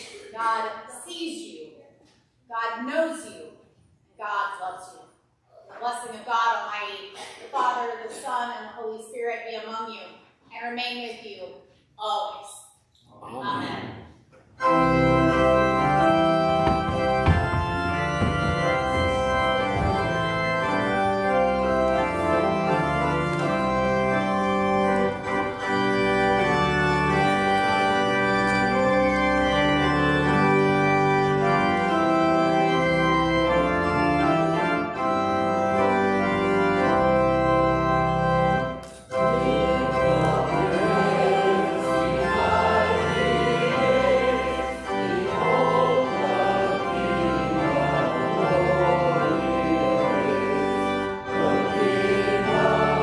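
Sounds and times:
church organ playing a hymn: 14.5 - 53.0
choir singing: 15.2 - 24.4, 39.1 - 53.0.

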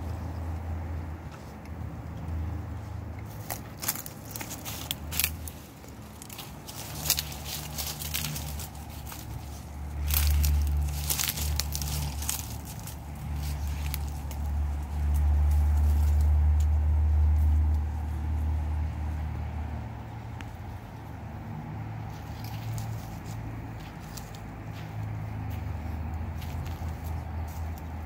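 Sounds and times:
footsteps crunching through dry leaves: 3.3 - 17.8, 22.0 - 28.0.

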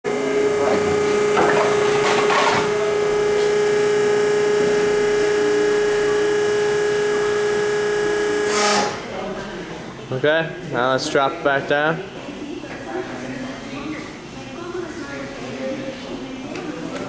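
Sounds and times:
motor hum: 0.1 - 9.2.

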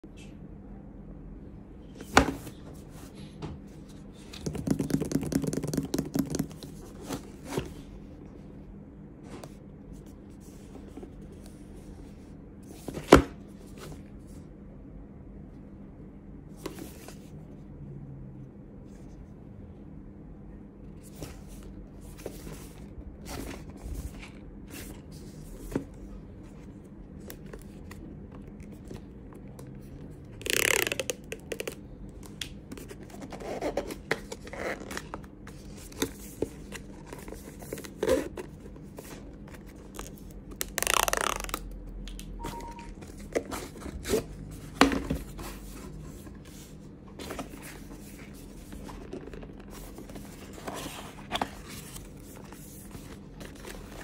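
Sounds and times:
fingers tapping cardboard: 4.4 - 6.7.

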